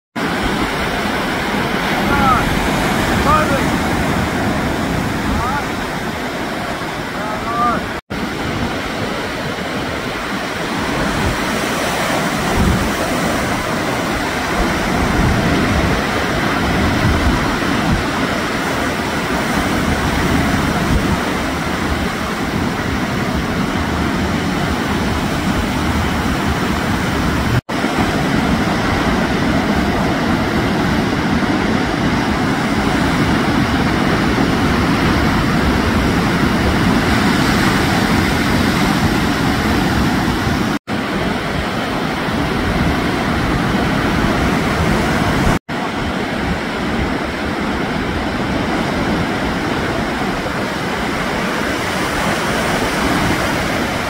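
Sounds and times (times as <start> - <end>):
ocean surf breaking: 0.2 - 54.0.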